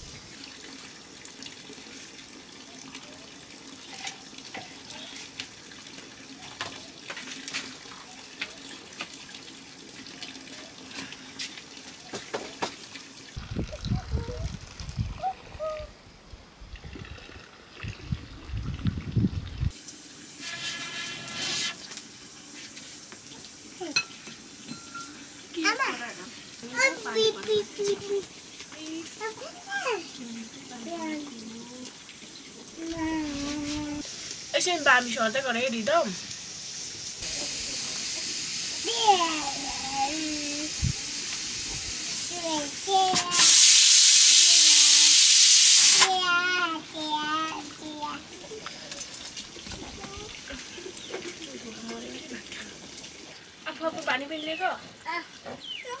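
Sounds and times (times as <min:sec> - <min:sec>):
water pouring: 0:00.0 - 0:55.7
children's voices: 0:26.6 - 0:32.0, 0:38.8 - 0:40.8, 0:42.2 - 0:43.6, 0:46.0 - 0:48.8, 0:49.8 - 0:50.7, 0:55.0 - 0:56.0
loud steady hiss: 0:33.5 - 0:47.4.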